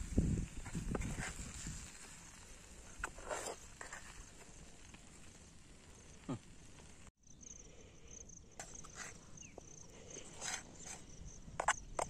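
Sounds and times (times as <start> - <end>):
insects chirping: 7.2 - 12.0.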